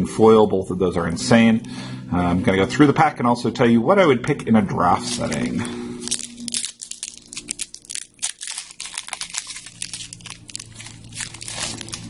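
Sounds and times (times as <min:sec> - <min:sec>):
foil wrapper tearing and crinkling: 0:05.0 - 0:12.0.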